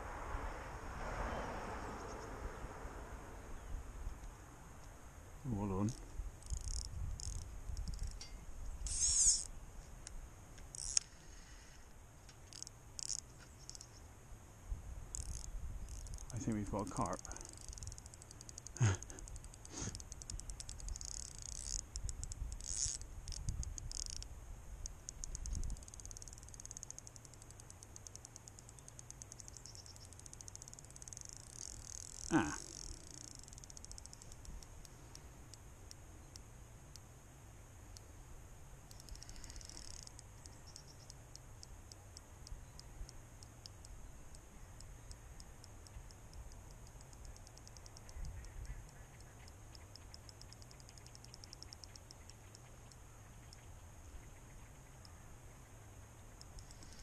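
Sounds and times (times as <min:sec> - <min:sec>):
fishing reel ticking: 0:06.4 - 0:09.5, 0:10.7 - 0:11.8, 0:12.4 - 0:14.0, 0:15.1 - 0:36.4, 0:38.9 - 0:53.6.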